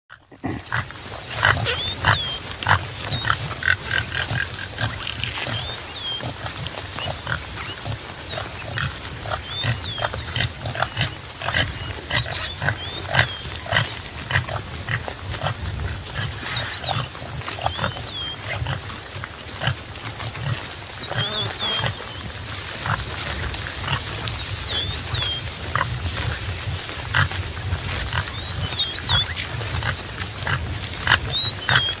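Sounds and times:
antelope grunting: 0.2 - 18.9.

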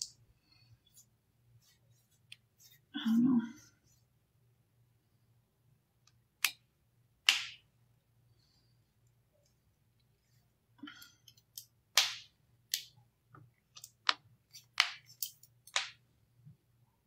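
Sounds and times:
hands clicking and tapping: 11.3 - 16.0.

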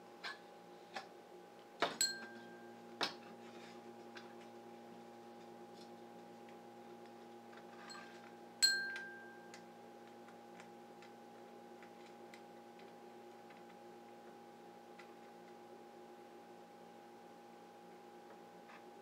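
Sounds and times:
electrical hum: 0.0 - 19.0
metallic clink: 2.0 - 2.4, 8.6 - 9.2.

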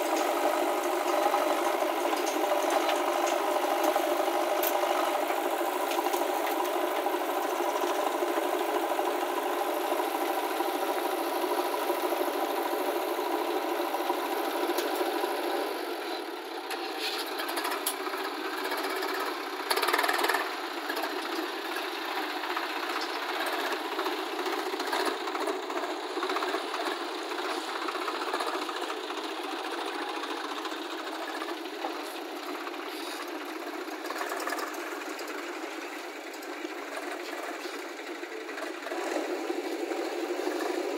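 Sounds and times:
diesel engines clattering: 0.0 - 40.9
engine revving: 38.6 - 40.9.

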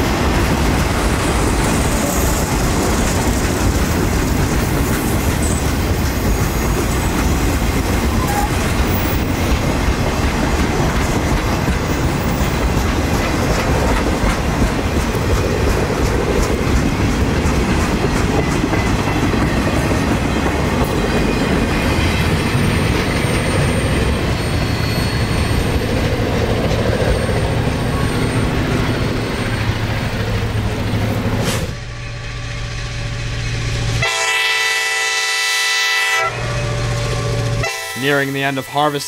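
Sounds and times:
train cars rolling on rails: 0.0 - 39.0
locomotive horn blast: 34.0 - 39.0.

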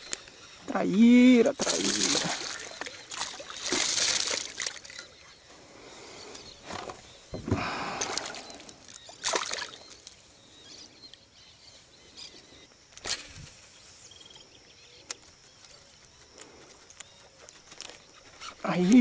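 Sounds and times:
fish splashing: 1.6 - 5.1, 7.9 - 10.2.

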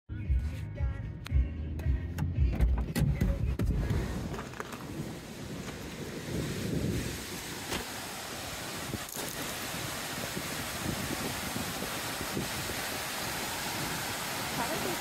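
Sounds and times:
wind buffeting microphone: 4.0 - 15.0
rushing mountain creek: 4.8 - 15.0.

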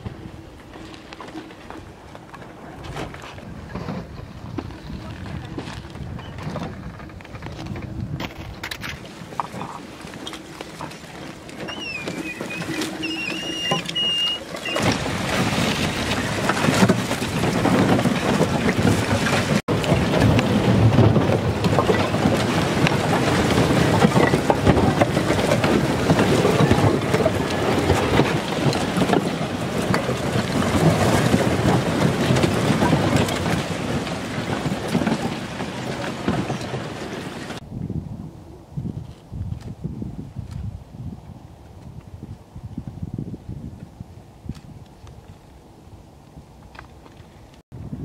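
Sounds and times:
ice slabs grinding and crackling: 0.4 - 37.6.

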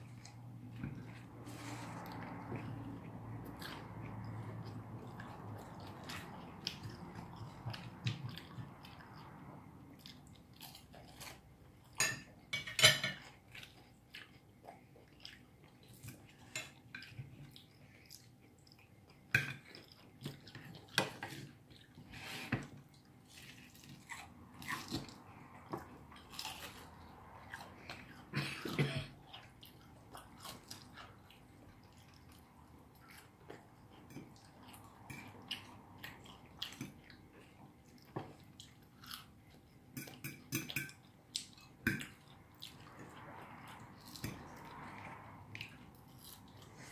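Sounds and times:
cutlery clinking on plates: 11.9 - 13.3, 39.9 - 41.0.

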